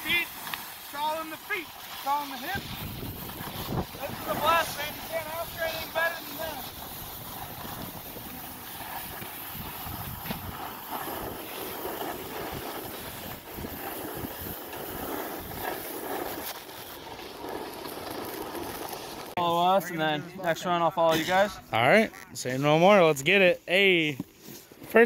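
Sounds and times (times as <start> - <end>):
snowboards scraping on snow: 0.0 - 20.7
wind buffeting microphone: 2.5 - 11.6.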